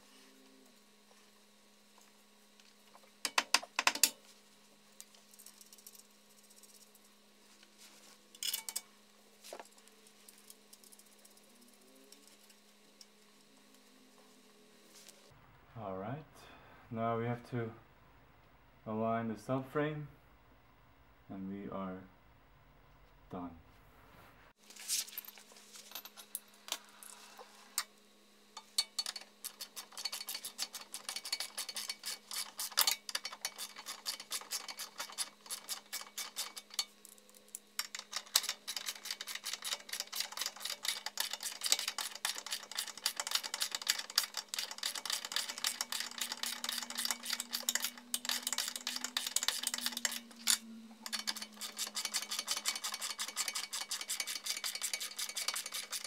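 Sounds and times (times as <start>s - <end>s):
socket ratchet clicking: 37.8s - 56.0s.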